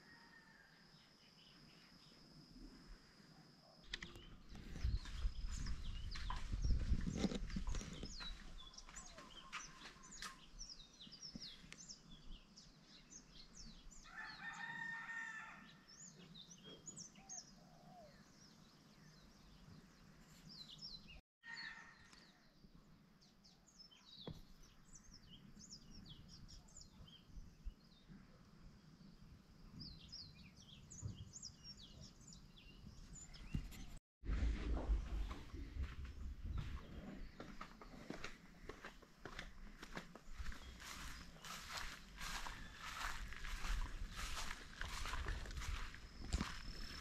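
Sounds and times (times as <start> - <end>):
rooster crowing: 0.0 - 0.7, 14.1 - 15.8, 21.4 - 22.2, 42.2 - 43.8
small birds chirping: 3.9 - 14.0, 28.9 - 34.0, 35.0 - 47.0.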